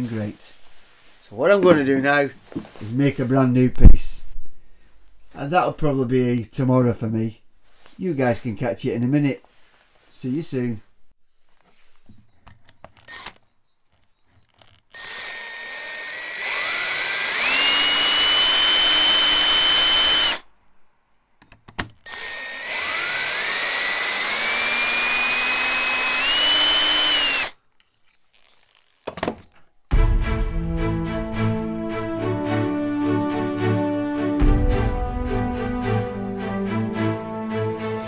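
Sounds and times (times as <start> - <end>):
cordless drill motor whine: 13.0 - 13.6, 14.4 - 20.4, 22.0 - 27.6.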